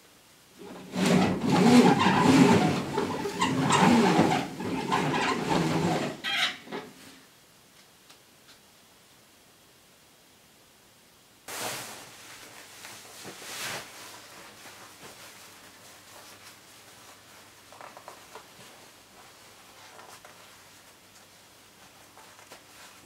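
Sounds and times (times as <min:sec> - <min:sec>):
cloth swishes: 0:11.5 - 0:17.4.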